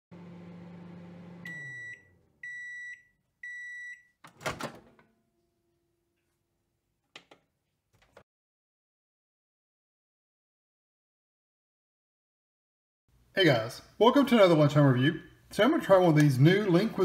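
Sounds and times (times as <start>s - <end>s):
microwave oven humming: 0.1s - 2.8s.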